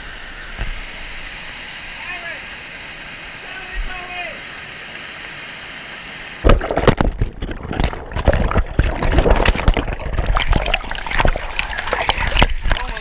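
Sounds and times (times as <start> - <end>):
muffled underwater waterfall churning: 0.0 - 13.0
underwater knocks and splashes: 6.4 - 13.0.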